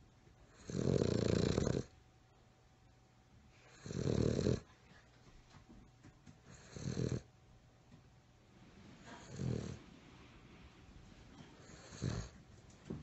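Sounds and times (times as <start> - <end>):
dog snoring: 0.4 - 1.9, 3.6 - 4.7, 6.5 - 7.3, 9.1 - 9.8, 11.6 - 12.4.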